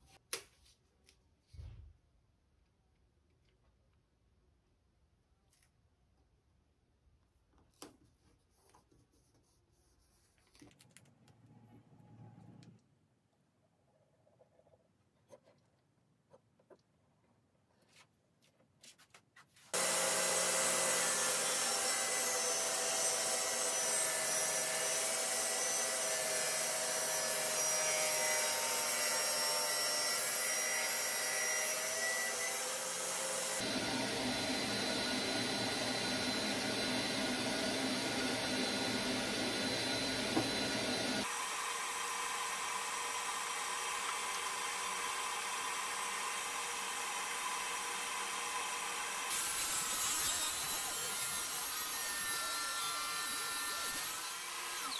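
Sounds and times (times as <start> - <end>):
table saw cutting wood: 19.7 - 54.9.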